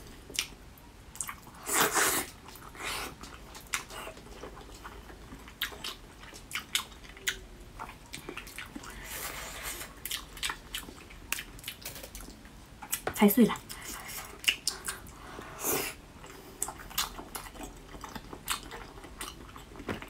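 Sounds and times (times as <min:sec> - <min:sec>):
chewing and biting: 0:16.2 - 0:20.0.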